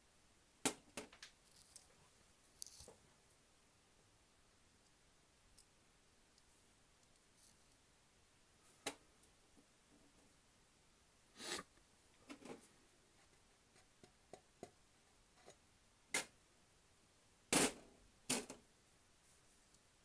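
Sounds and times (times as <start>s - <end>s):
small parts clicking and tapping: 0.6s - 1.9s, 2.5s - 3.0s.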